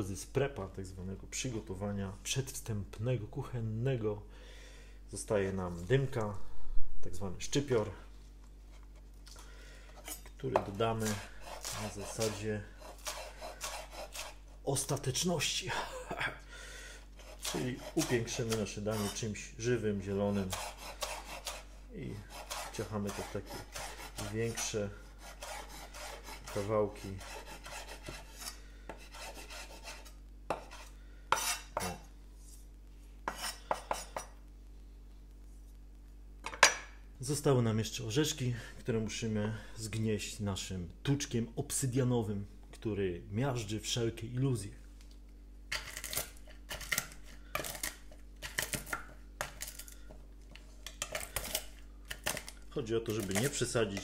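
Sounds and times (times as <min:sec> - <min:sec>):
knife chopping on wooden board: 0:10.5 - 0:14.4, 0:25.2 - 0:32.0, 0:33.3 - 0:34.3.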